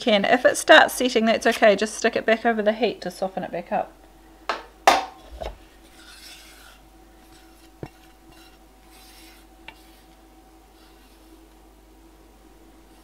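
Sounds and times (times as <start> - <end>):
saucepan scraping and rubbing: 5.2 - 11.6.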